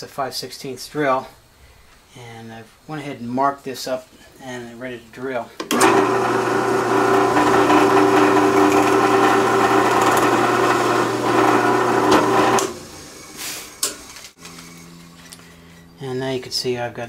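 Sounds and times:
drill press drilling wood: 5.6 - 14.3.

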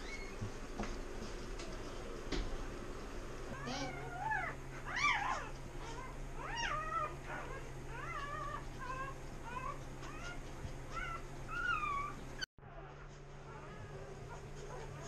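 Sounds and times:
puppy squealing: 0.0 - 0.4, 3.6 - 12.5.

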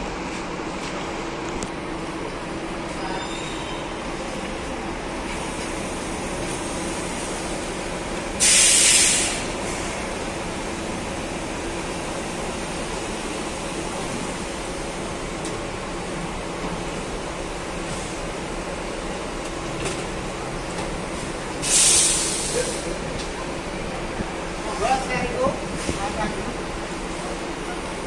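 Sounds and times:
bus diesel engine running: 0.0 - 28.0
compressed air hiss: 8.4 - 10.0, 21.6 - 23.0.

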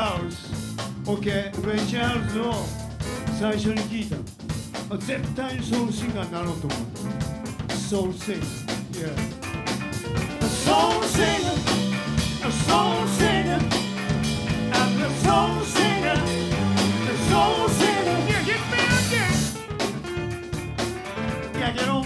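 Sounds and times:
live band playing: 0.0 - 22.0
person singing: 10.4 - 11.8, 12.4 - 13.8, 14.7 - 19.6, 21.5 - 22.0.

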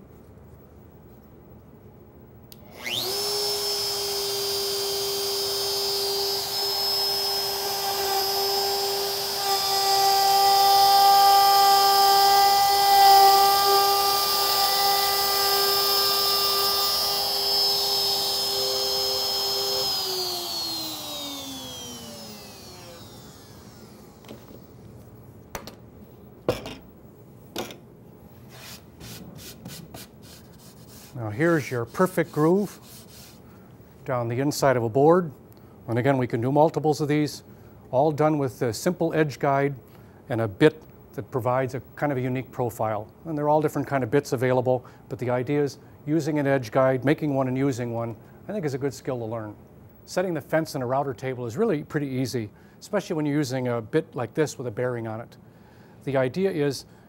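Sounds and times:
router whining and cutting wood: 2.6 - 24.8.

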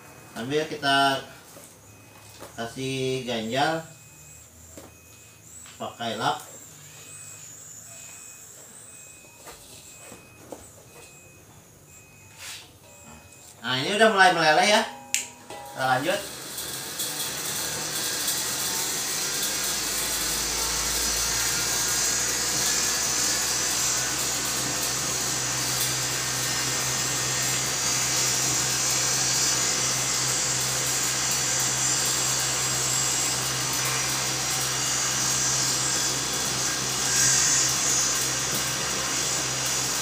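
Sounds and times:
cotton candy machine whirring: 15.6 - 40.0.

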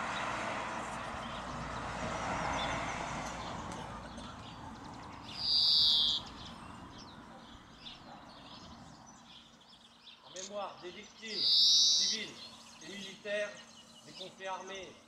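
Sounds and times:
bird harsh call: 5.2 - 6.6, 10.2 - 15.0
faint bird chirps: 5.3 - 14.4.

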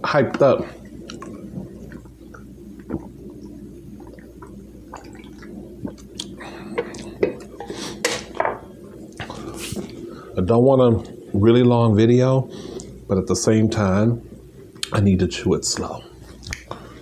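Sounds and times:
person gulping a drink: 0.8 - 10.0
wet mouth clicks and smacks: 1.1 - 7.1, 16.4 - 16.7.

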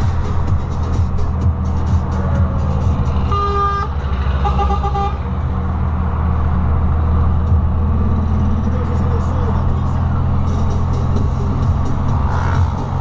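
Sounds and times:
truck engine drone from cab: 0.0 - 13.0
vehicle horn toots: 3.2 - 5.3.

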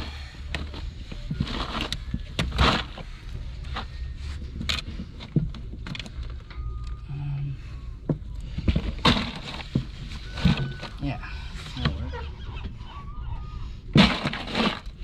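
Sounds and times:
fish knocking in box of ice: 14.0 - 15.0.

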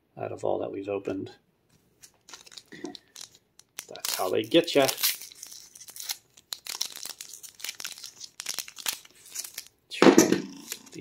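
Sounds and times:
foil wrapper crinkling and tearing: 2.0 - 9.8, 10.5 - 11.0.

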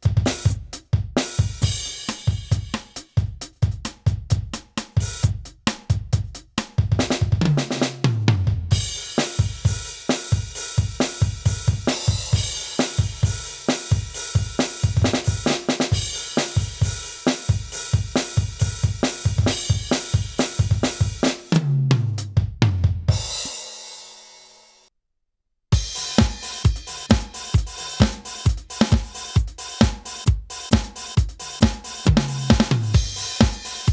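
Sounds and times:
electronic drum kit groove: 0.0 - 23.9, 25.7 - 33.9
tom fill: 25.7 - 33.9.

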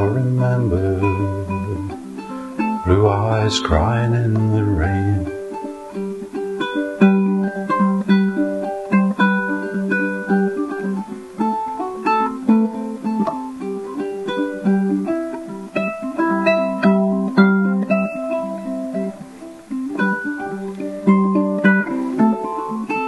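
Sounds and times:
ukulele melody: 0.0 - 23.0.

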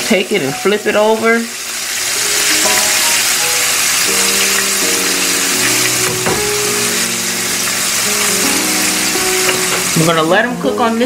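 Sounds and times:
chicken sizzling in hot oil: 0.0 - 11.0
background music with sustained notes: 0.5 - 11.0.

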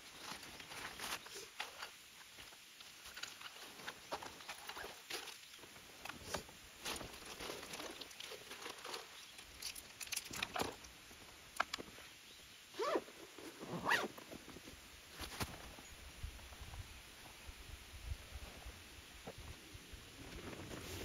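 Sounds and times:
small clicks of gear: 0.2 - 11.9
bag rustling: 12.8 - 14.2
zipper pulled shut: 12.8 - 14.2.

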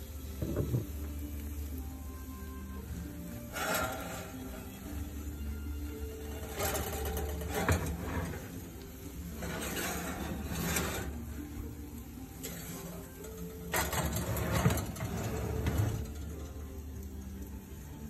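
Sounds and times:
skillet scraping on oven rack: 2.8 - 16.5.

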